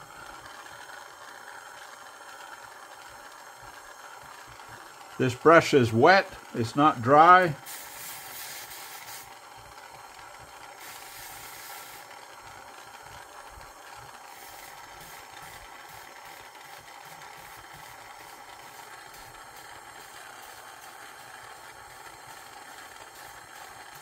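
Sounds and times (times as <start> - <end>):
gas torch flame hissing: 0.0 - 24.0
bursts of higher hissing: 4.8 - 12.2, 13.8 - 24.0.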